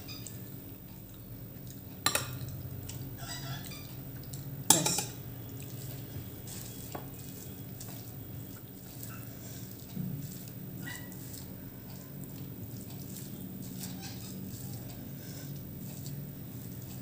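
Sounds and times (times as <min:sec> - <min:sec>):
serving spoon clinking on dishes: 0:02.0 - 0:02.4, 0:04.7 - 0:05.2.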